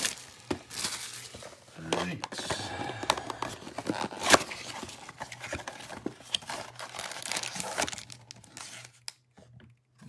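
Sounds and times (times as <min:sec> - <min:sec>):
foil packs crinkling: 0:00.0 - 0:01.9, 0:02.8 - 0:09.2
cardboard box ripping open: 0:03.7 - 0:08.8.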